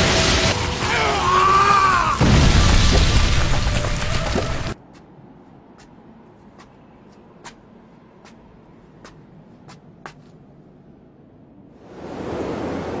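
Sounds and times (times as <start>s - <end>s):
debris falling clicks: 0.0s - 4.8s
rushing noise: 11.6s - 13.0s.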